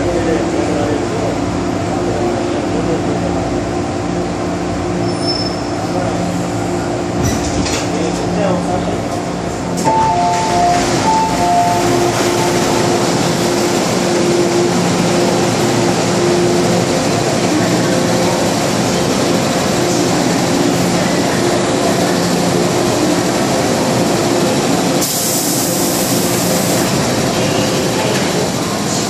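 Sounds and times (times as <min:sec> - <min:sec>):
train humming: 0:05.6 - 0:29.0
train doors hissing: 0:25.0 - 0:27.0.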